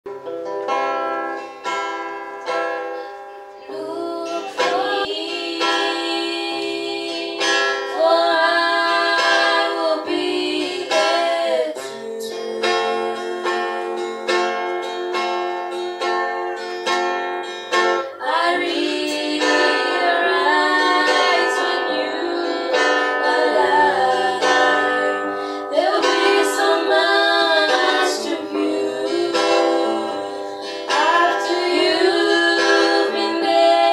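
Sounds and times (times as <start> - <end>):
strummed guitar: 0.1 - 33.9
women singing gospel song: 3.6 - 14.3, 18.1 - 33.9.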